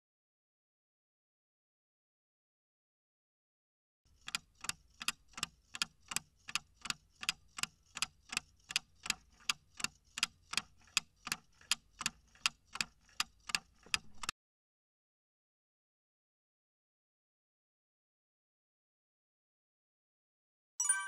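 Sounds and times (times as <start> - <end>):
clock ticking: 4.1 - 14.3.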